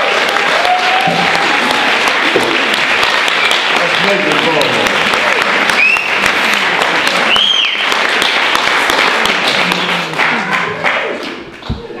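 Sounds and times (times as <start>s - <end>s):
audience applauding and cheering: 0.0s - 12.0s
loud whistle: 5.8s - 6.2s, 7.3s - 7.9s.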